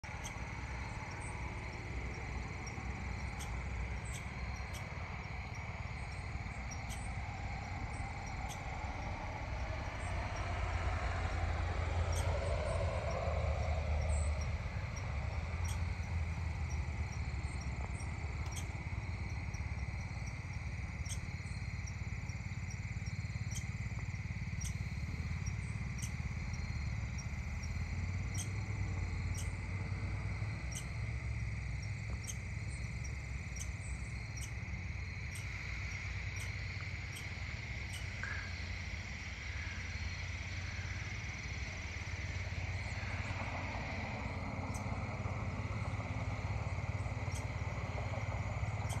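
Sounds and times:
crickets chirping: 0.0 - 49.0
sharp high ticks: 14.4 - 22.0.

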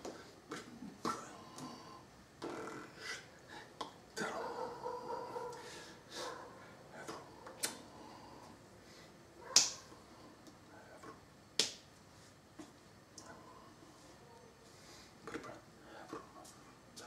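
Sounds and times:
hands slapping together: 9.5 - 10.6, 11.6 - 11.9.

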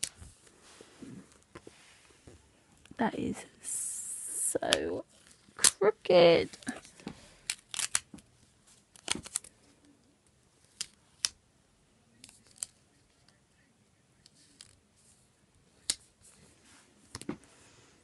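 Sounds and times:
stickers peeling and pressing: 6.6 - 8.3, 8.9 - 9.5.

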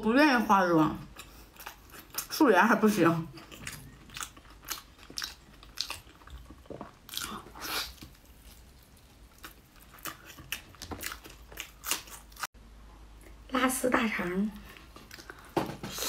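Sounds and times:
wet chewing and lip-smacking: 1.1 - 2.3, 3.3 - 12.5.

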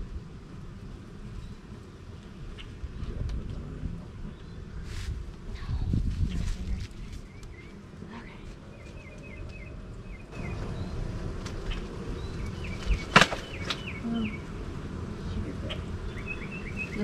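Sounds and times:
honeybees buzzing: 0.0 - 17.0
bird chirping: 6.2 - 17.0
sharp crack: 11.3 - 14.0.

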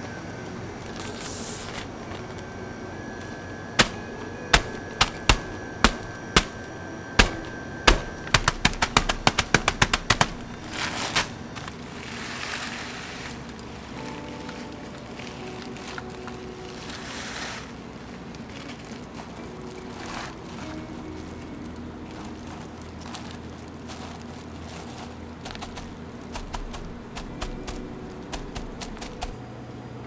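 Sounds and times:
plastic bag rustling: 0.0 - 29.4
hand slapping plastic bag: 3.8 - 13.6, 18.6 - 29.4.

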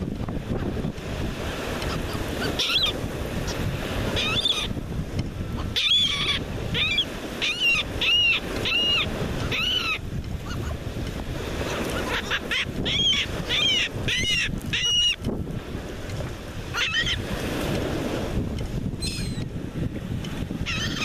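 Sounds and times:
surf: 0.0 - 21.0
wind: 0.0 - 21.0
gulls calling: 1.6 - 4.8, 5.5 - 10.9, 11.5 - 15.3, 16.6 - 17.4, 19.0 - 19.5, 20.6 - 21.0.

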